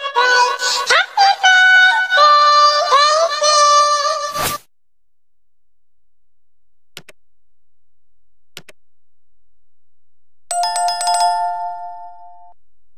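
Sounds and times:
notification bell chime: 0:10.5 - 0:12.6.

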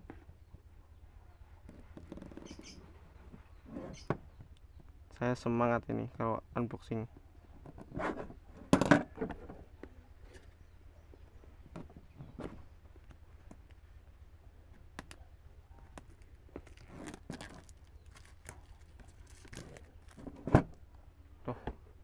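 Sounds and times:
plastic wrap tearing and crinkling: 0:16.1 - 0:20.5.

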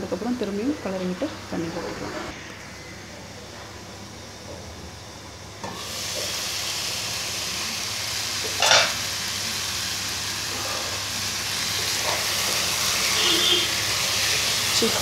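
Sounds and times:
food sizzling in a pan: 0:05.6 - 0:15.0.

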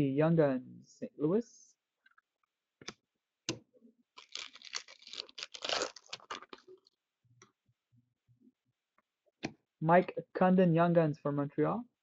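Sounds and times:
foil wrapper tearing and crinkling: 0:04.2 - 0:06.8.

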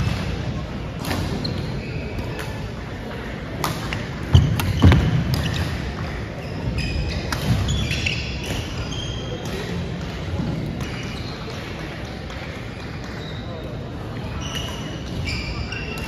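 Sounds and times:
shoe squeaks: 0:01.2 - 0:02.4, 0:06.4 - 0:09.7, 0:10.8 - 0:11.6, 0:14.3 - 0:16.0
racket hitting shuttlecock: 0:03.6 - 0:06.1.

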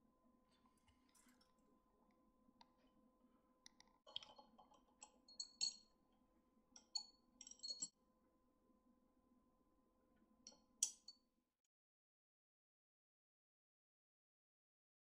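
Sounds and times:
faint steady hum: 0:00.0 - 0:11.2.

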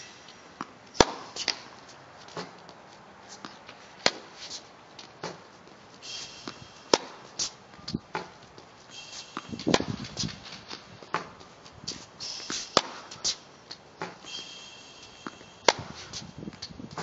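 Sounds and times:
ball bouncing: 0:00.0 - 0:02.8, 0:06.4 - 0:11.7, 0:12.4 - 0:17.0
shoes squeaking on hard court: 0:00.0 - 0:17.0
tennis racket hitting ball: 0:00.0 - 0:17.0
footsteps on court: 0:00.6 - 0:14.3.

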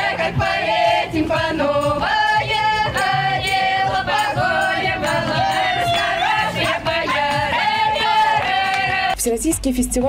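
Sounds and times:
women's choir singing folk song: 0:00.0 - 0:09.2.

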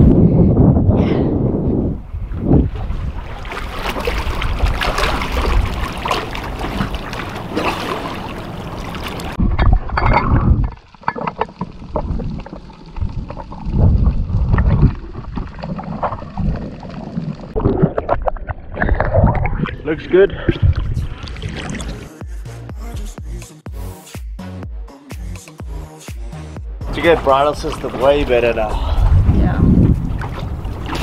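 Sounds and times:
muffled underwater rumbling: 0:00.0 - 0:22.1, 0:26.8 - 0:31.0
water and wind noise: 0:00.0 - 0:22.2, 0:26.8 - 0:31.0
underwater gurgling: 0:02.6 - 0:22.1.

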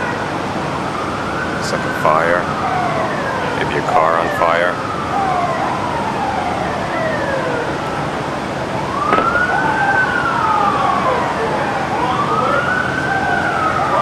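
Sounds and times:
emergency sirens wailing: 0:00.0 - 0:14.0
sharp crack: 0:09.1 - 0:09.7.

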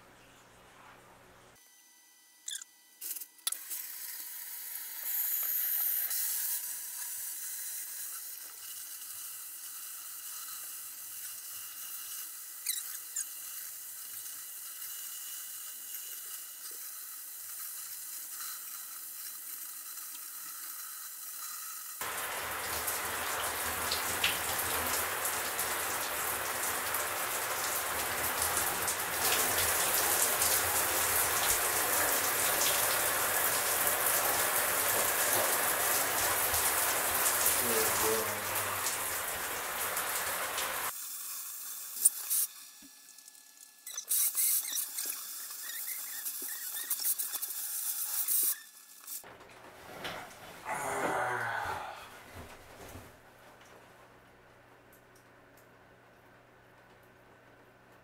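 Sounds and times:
shower water spraying: 0:05.0 - 0:49.3.

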